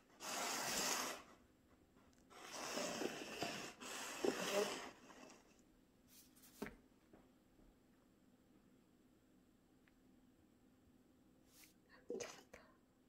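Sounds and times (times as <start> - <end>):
paper cups scraping on countertop: 0.0 - 1.4, 2.3 - 5.6.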